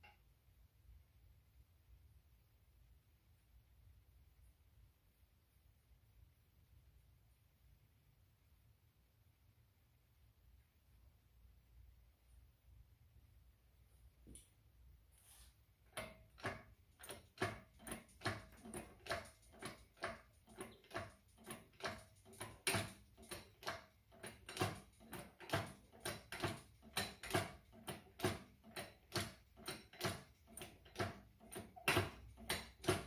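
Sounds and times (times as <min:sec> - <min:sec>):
paintbrush strokes on metal: 0:15.1 - 0:15.6.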